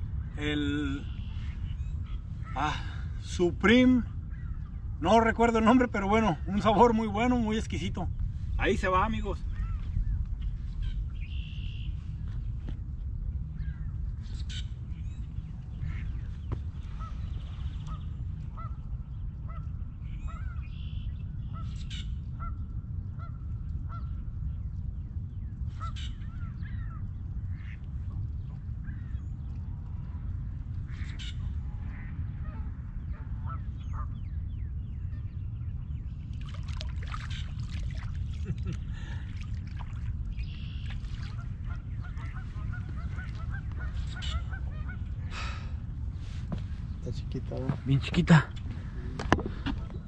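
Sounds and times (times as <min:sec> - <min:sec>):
birds calling: 0:00.0 - 0:50.0
steady low rumble: 0:00.0 - 0:50.0
water splashing: 0:36.3 - 0:44.4.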